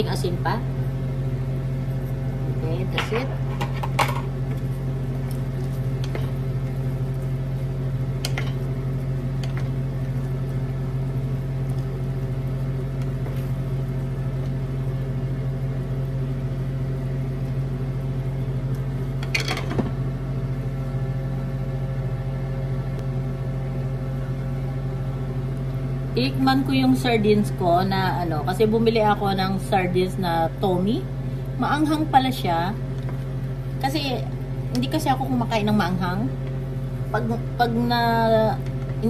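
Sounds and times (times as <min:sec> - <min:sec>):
appliance hum: 0:00.0 - 0:39.0
spatula stirring in skillet: 0:03.4 - 0:14.7.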